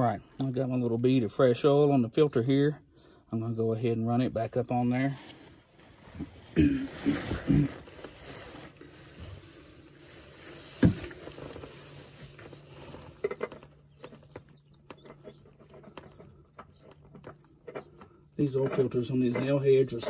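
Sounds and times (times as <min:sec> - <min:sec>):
rustling: 0:05.1 - 0:20.0
light scrapes and clicks: 0:08.0 - 0:20.0.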